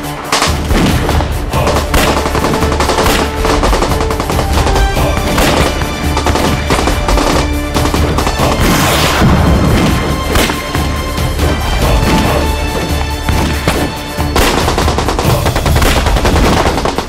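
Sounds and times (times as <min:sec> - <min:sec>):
dramatic music score: 0:00.0 - 0:17.0
rapid gunfire: 0:00.2 - 0:08.9, 0:11.8 - 0:17.0
loud blast: 0:07.9 - 0:10.8.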